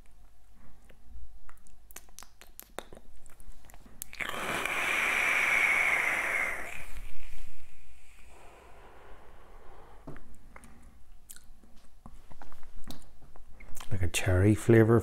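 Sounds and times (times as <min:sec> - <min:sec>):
e-cigarette air hissing: 0:04.2 - 0:10.0
breathy exhale: 0:04.2 - 0:11.0.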